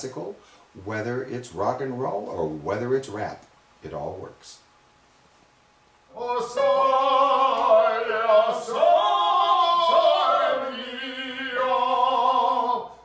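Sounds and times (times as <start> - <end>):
man singing operatic tones: 6.1 - 13.0.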